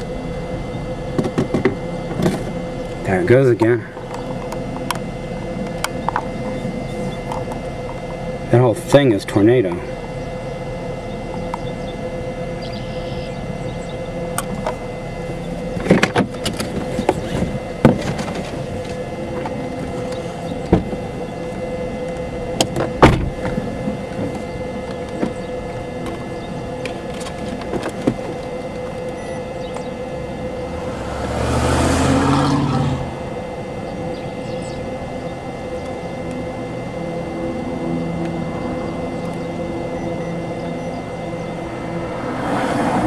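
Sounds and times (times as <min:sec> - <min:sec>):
constant hum: 0:00.0 - 0:43.0
scattered clicks and knocks: 0:01.1 - 0:03.0, 0:26.8 - 0:29.9
pickup truck driving past: 0:30.4 - 0:33.5, 0:41.3 - 0:43.0.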